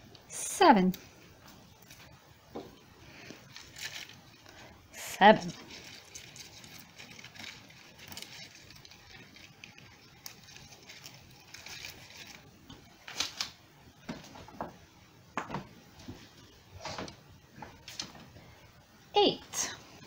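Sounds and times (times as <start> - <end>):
dry twigs rustling and clicking: 0.9 - 4.8, 5.4 - 14.7, 16.0 - 18.4.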